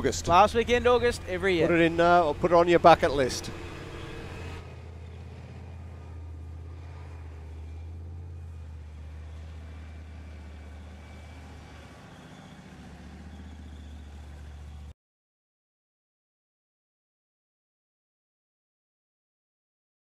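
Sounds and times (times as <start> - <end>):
heavy vehicle engine droning: 0.0 - 15.0.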